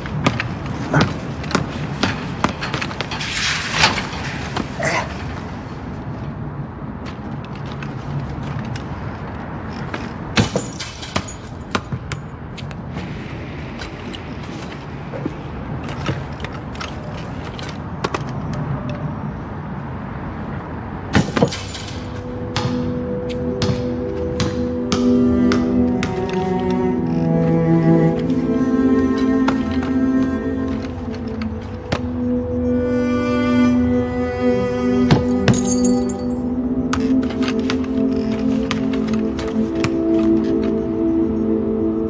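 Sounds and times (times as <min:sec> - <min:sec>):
metal chain net rattling: 0:10.4 - 0:11.8, 0:21.2 - 0:22.4, 0:35.2 - 0:36.4
quiet music score: 0:21.1 - 0:42.0
sustained music chord: 0:22.0 - 0:42.0
basketball bouncing on concrete: 0:22.6 - 0:22.9.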